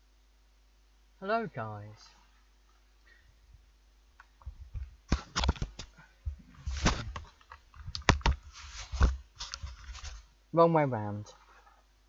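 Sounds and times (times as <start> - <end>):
headphones clicking and rustling: 4.2 - 10.3.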